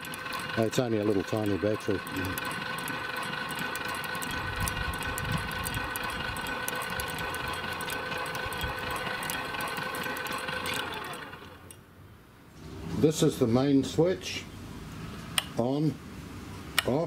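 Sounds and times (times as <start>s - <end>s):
electric winch motor whine: 0.0s - 11.8s.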